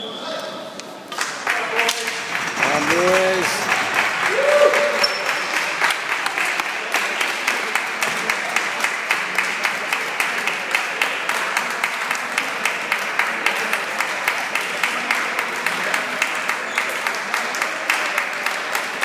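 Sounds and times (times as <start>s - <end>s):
voices: 0.0s - 8.7s
spectators applauding: 1.2s - 19.0s.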